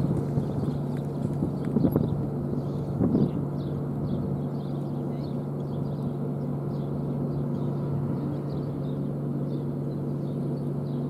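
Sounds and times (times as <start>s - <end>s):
horse hoofbeats on grass: 0.0s - 2.3s.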